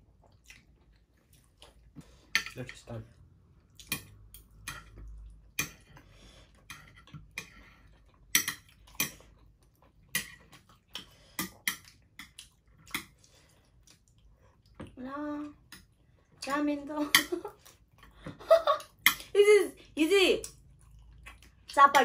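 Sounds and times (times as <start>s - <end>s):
cutlery clinking on ceramic plates: 8.3s - 9.2s.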